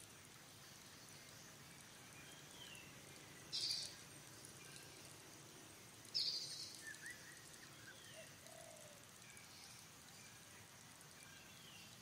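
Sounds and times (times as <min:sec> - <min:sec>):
bird chirps: 0:01.0 - 0:05.1, 0:06.1 - 0:10.5.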